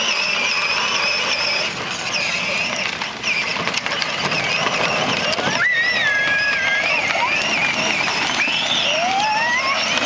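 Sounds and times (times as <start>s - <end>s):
toy car electric motor whining: 0.0s - 10.0s.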